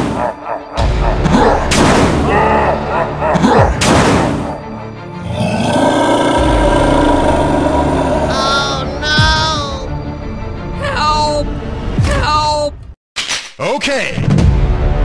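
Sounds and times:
background music: 0.0s - 13.0s, 13.8s - 15.0s
monster roar: 5.2s - 9.8s
high cartoonish vocal sounds: 8.2s - 9.9s.

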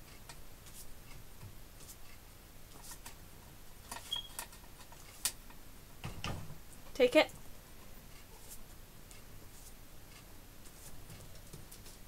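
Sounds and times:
faint squeak: 4.0s - 4.4s.

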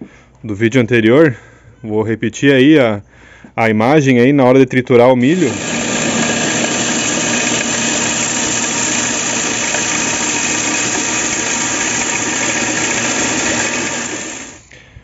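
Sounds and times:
electric corn sheller running: 5.3s - 14.7s.

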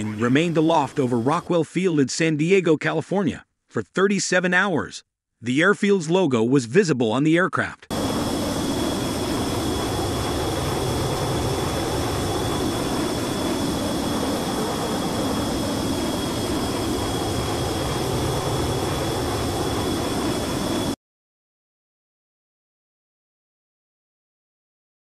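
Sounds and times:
jet aircraft roar with high whine: 0.0s - 2.1s, 7.5s - 21.0s.

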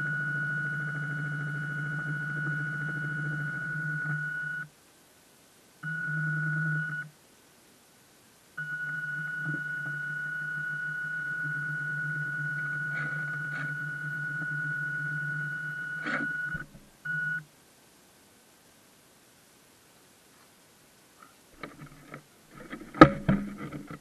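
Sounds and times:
model boat electric motor whining: 0.0s - 4.6s, 8.6s - 16.7s.

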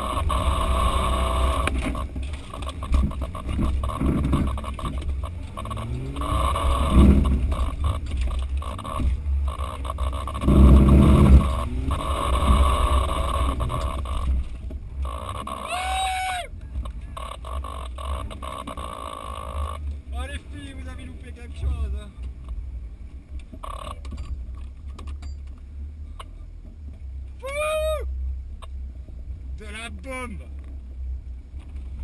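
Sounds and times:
engine revving: 0.0s - 22.0s
vehicle knocks and rattles: 1.6s - 15.4s, 23.3s - 25.7s.

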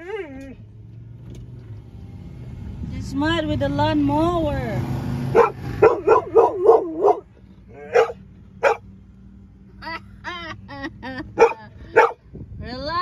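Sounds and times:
dog barking: 5.3s - 8.9s, 11.4s - 12.2s.

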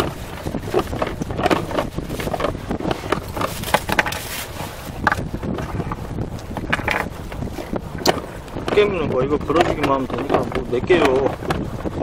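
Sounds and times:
low rumble: 0.0s - 12.0s
wind buffeting microphone: 0.0s - 12.0s
fishing rig knocks and clicks: 6.4s - 7.4s.

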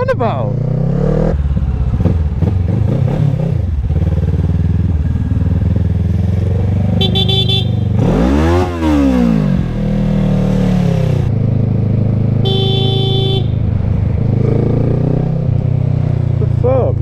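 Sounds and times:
motorcycle engine revving: 0.0s - 17.0s
vehicle horn beeps: 7.0s - 7.8s, 12.4s - 13.6s.

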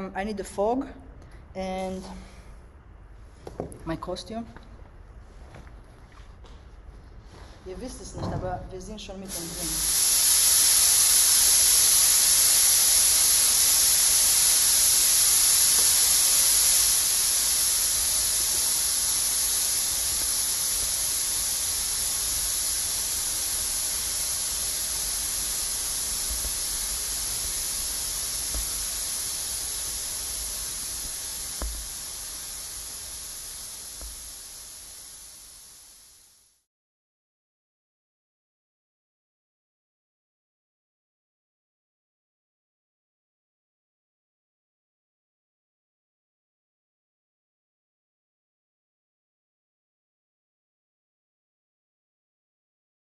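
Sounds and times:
fog machine hissing: 9.2s - 36.7s.

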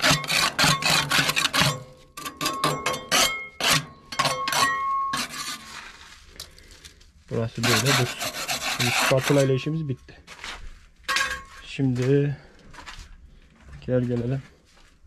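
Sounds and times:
metal spatula scraping steel: 0.0s - 6.3s, 7.5s - 9.9s.

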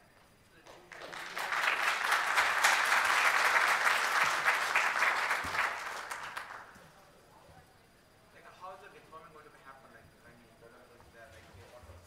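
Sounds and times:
audience applauding: 0.6s - 6.8s.

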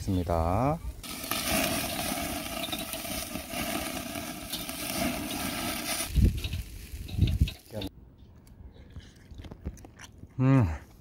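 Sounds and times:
meat sizzling on a grill: 1.0s - 7.9s.

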